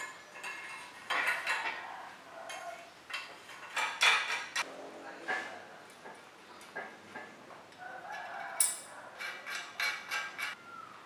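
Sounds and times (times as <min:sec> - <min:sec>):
metallic clinks of bicycle parts: 0:08.5 - 0:10.6.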